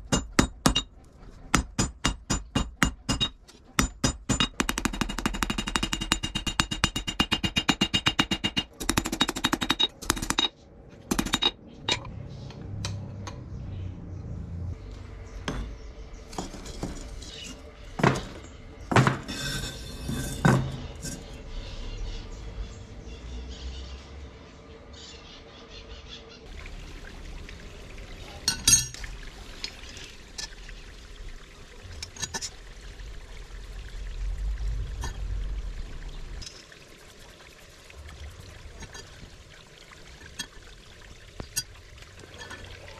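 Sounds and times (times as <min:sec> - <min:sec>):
hammer striking steel on anvil: 0:00.0 - 0:00.9, 0:01.5 - 0:10.5.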